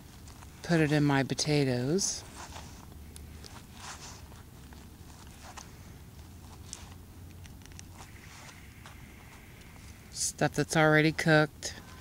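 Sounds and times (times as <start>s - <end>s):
paper rustling: 2.2s - 7.0s.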